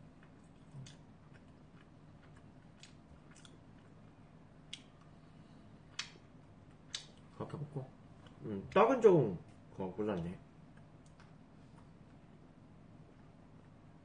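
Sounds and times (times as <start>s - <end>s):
person chewing: 0.0s - 5.3s.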